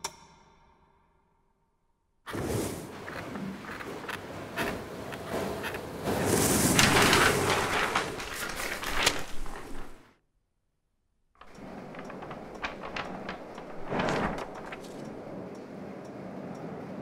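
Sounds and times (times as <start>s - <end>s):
paper rustling with light ticks: 3.2s - 10.1s, 11.4s - 15.4s
rush of air: 5.3s - 10.0s
paper fluttering: 5.7s - 10.1s, 11.4s - 15.3s.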